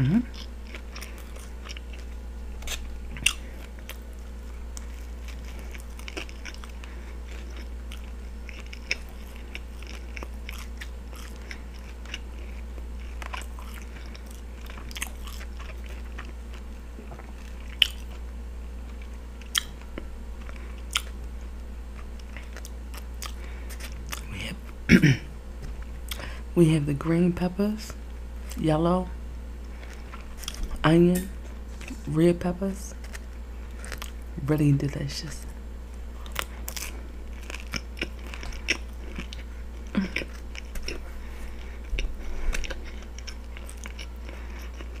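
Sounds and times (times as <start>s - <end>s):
low hum: 0.0s - 45.0s
chewing: 0.3s - 24.3s, 29.6s - 30.8s, 33.0s - 34.3s, 36.2s - 45.0s.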